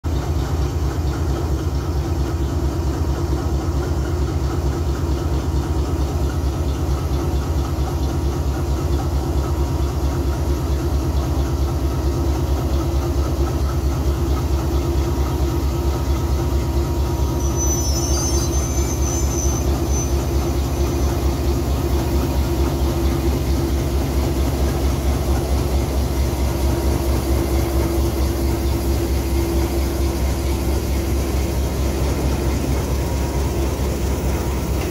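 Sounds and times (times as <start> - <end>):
diesel locomotive engines throbbing: 0.1 - 34.9
faint high squeal: 16.9 - 21.3.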